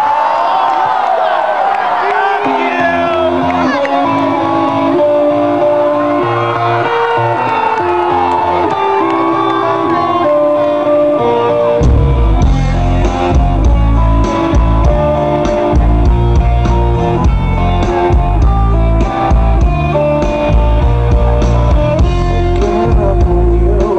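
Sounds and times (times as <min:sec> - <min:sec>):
electric guitar riff: 0:02.4 - 0:23.9
bass guitar: 0:02.9 - 0:23.9
drum kit: 0:11.8 - 0:23.9.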